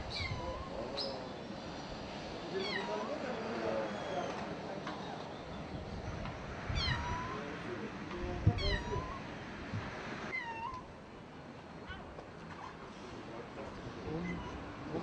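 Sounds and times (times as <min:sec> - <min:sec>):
cat meowing: 0:02.6 - 0:03.1, 0:06.8 - 0:07.4, 0:08.5 - 0:09.2, 0:10.3 - 0:10.9, 0:14.1 - 0:14.6.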